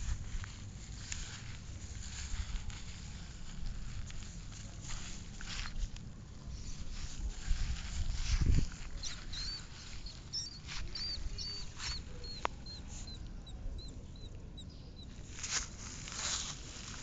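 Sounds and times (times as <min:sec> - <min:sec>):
rat squeaking: 0:08.7 - 0:15.3.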